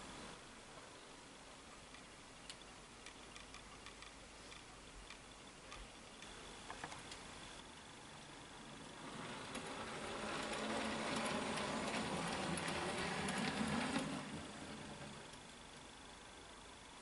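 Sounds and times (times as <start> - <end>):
wheels rolling on rails: 1.8 - 17.0
model train motor whirring: 8.2 - 16.2.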